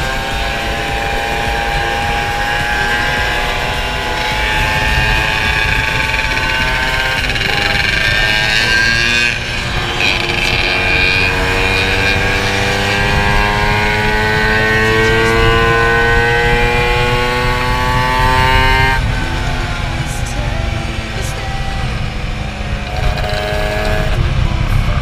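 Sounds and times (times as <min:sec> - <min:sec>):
scooter engine revving: 0:00.0 - 0:25.0
wind rushing over microphone: 0:00.0 - 0:25.0.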